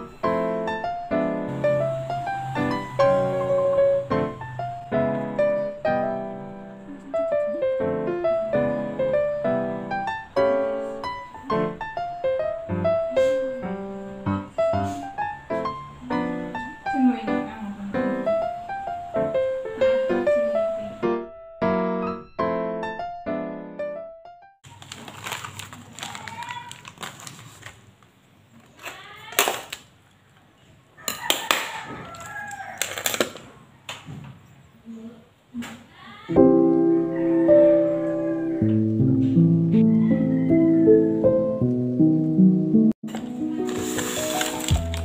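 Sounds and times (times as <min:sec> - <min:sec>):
gentle piano music: 0:00.0 - 0:24.6, 0:36.3 - 0:45.0
rooster crowing: 0:02.4 - 0:04.1, 0:31.0 - 0:33.7, 0:36.9 - 0:38.9, 0:39.8 - 0:41.3.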